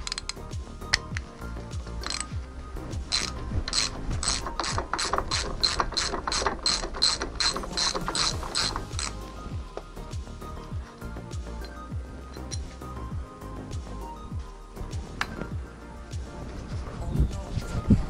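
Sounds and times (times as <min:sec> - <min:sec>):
socket ratchet clicking: 0:00.0 - 0:01.3, 0:02.0 - 0:02.3, 0:03.1 - 0:09.3, 0:11.6 - 0:12.7.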